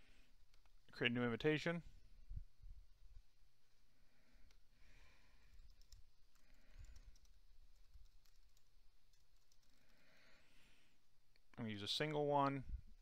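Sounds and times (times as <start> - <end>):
computer keyboard typing: 5.4 - 10.0.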